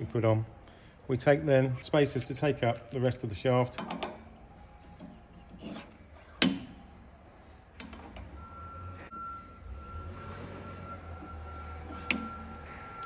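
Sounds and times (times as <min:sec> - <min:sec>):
metal rings sliding on shaft: 0:03.7 - 0:06.8, 0:10.2 - 0:13.0.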